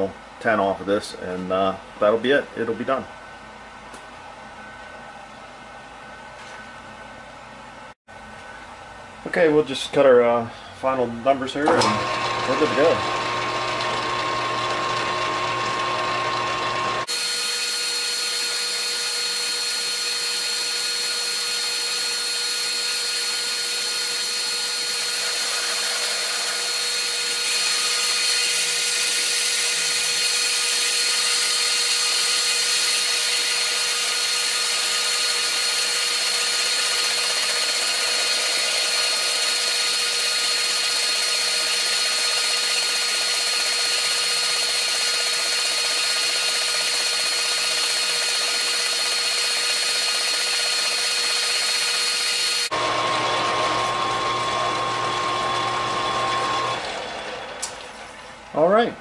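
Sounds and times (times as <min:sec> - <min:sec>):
metal lathe whine: 0:11.8 - 0:58.2
cutting tool hiss: 0:17.0 - 0:52.8.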